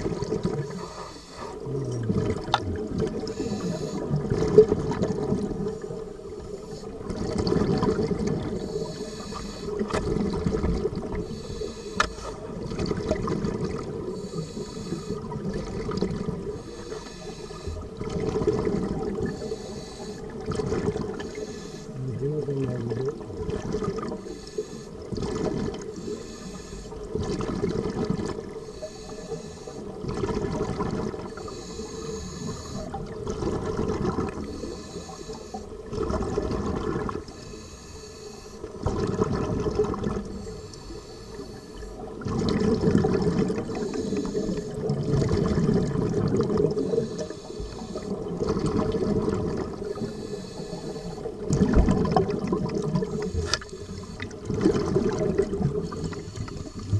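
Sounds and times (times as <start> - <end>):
exhaled bubbles rushing: 0.0 - 8.9, 9.7 - 16.6, 17.6 - 19.4, 20.3 - 21.4, 22.0 - 24.3, 24.9 - 26.1, 27.0 - 28.6, 29.8 - 34.7, 35.7 - 37.3, 38.7 - 40.5, 42.0 - 50.1, 51.2 - 56.9
regulator inhale hiss: 0.7 - 1.6, 3.3 - 4.2, 5.6 - 7.0, 8.5 - 9.9, 11.2 - 12.5, 14.0 - 15.3, 16.4 - 17.9, 19.3 - 20.4, 21.2 - 22.0, 24.2 - 25.1, 25.9 - 27.1, 28.6 - 30.0, 31.3 - 33.0, 34.4 - 35.8, 37.3 - 38.8, 40.3 - 42.1, 43.7 - 44.9, 46.8 - 48.3, 49.8 - 51.4, 53.0 - 54.4, 55.7 - 56.9.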